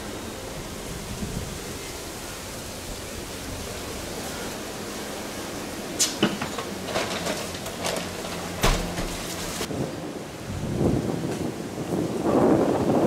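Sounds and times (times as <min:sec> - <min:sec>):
strong wind rushing: 0:00.0 - 0:04.2, 0:08.8 - 0:13.0.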